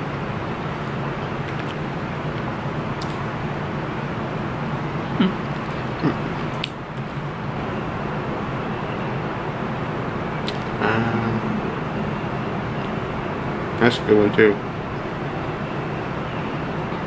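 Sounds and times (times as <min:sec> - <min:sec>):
outdoor ambience hum and hiss: 0:00.0 - 0:17.0
eating clicks: 0:01.4 - 0:04.5, 0:05.1 - 0:07.2, 0:10.4 - 0:10.8.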